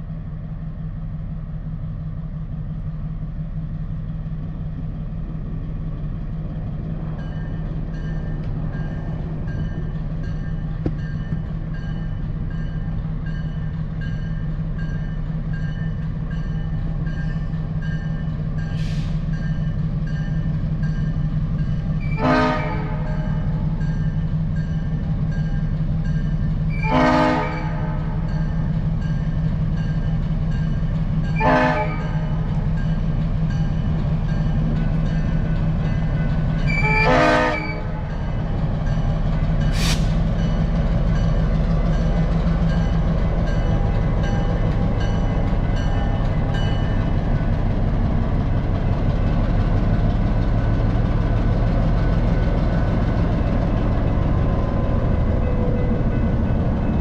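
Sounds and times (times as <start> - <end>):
locomotive engine running: 0.0 - 57.0
locomotive horn blasts: 22.0 - 23.6, 26.7 - 28.3, 31.3 - 32.5, 36.7 - 38.3.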